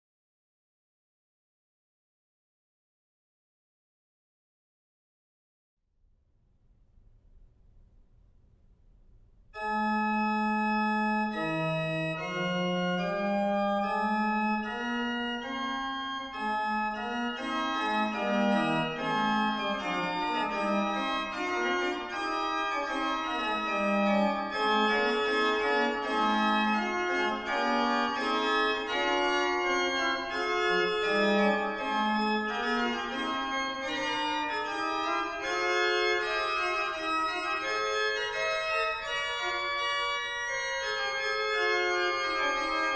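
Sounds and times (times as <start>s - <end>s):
pipe organ chorale prelude: 9.5s - 42.9s.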